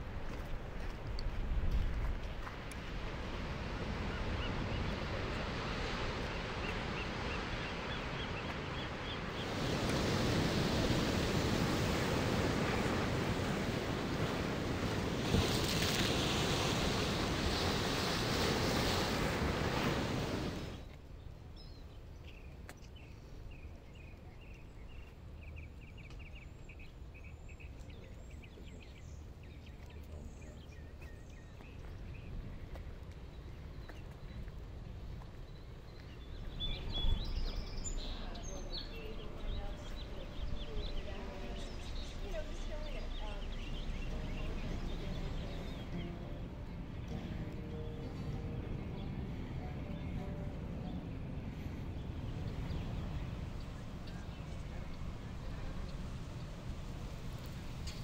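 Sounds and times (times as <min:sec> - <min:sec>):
ocean surf breaking on rocks: 0:00.0 - 0:21.0, 0:36.3 - 0:58.0
bird chirps: 0:35.5 - 0:51.0.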